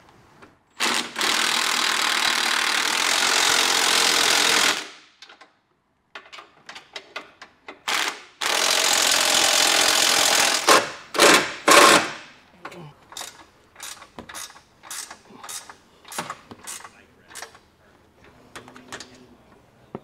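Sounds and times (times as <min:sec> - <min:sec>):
impact wrench hammering: 0:07.7 - 0:12.4, 0:13.1 - 0:17.7.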